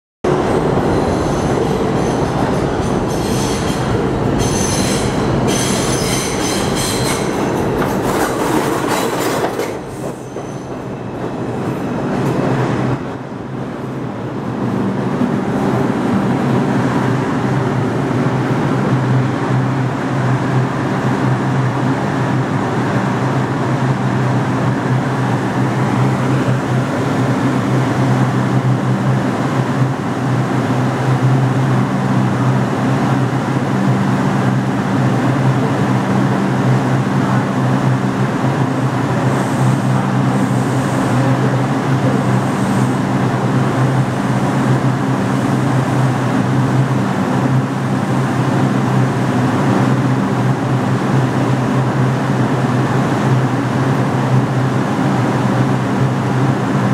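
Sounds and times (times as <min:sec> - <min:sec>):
steady low train hum: 0:00.2 - 0:56.9
train wheels squealing on rail: 0:00.9 - 0:08.0, 0:08.9 - 0:10.8.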